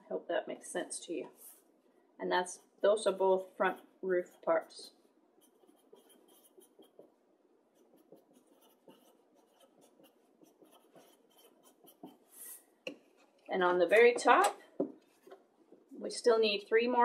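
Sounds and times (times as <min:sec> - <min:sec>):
marker writing on chipboard: 0:05.4 - 0:07.2, 0:07.8 - 0:12.6.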